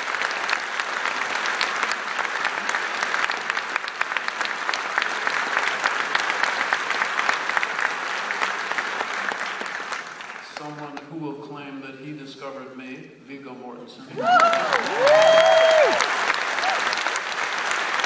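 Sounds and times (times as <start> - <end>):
audience applauding: 0.0 - 11.1, 14.1 - 18.0.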